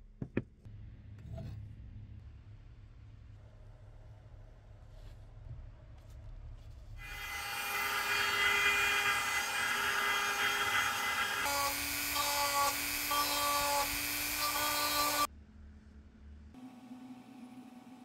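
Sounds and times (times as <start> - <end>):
rotary tool grinding wood: 7.0 - 15.3
router motor whine: 7.0 - 15.3.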